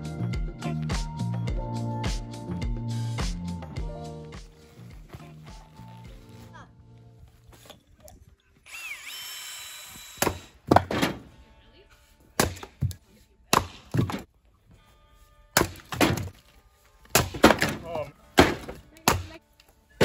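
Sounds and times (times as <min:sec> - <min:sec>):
axe splitting firewood: 0:10.2 - 0:11.4, 0:12.4 - 0:14.3, 0:15.6 - 0:19.4.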